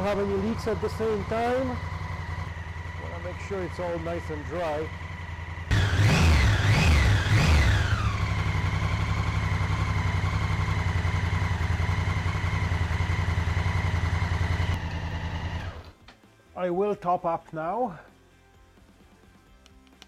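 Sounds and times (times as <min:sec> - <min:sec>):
motorcycle engine revving and idling: 0:00.0 - 0:16.0.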